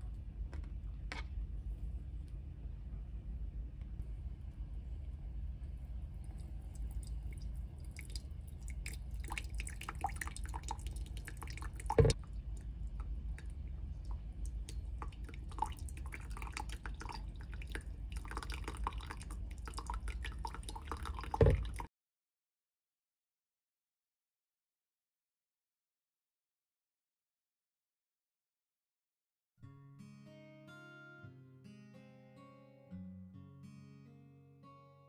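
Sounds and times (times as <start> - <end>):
low steady hum: 0.0 - 21.9
coffee dripping: 4.0 - 21.9
liquid plops: 6.3 - 21.9.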